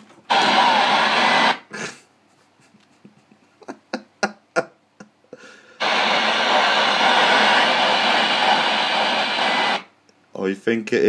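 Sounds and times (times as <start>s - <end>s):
radio static hiss: 0.3s - 1.8s, 5.8s - 9.9s.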